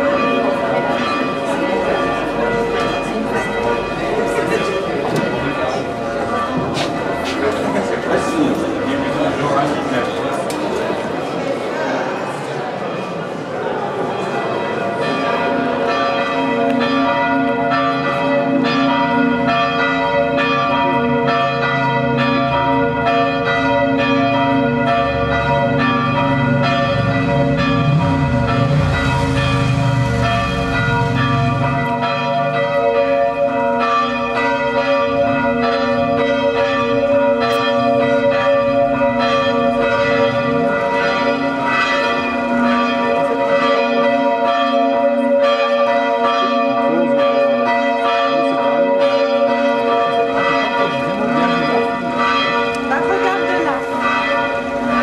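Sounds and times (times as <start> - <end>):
church bells pealing: 0.0 - 55.0
car passing: 26.3 - 32.7.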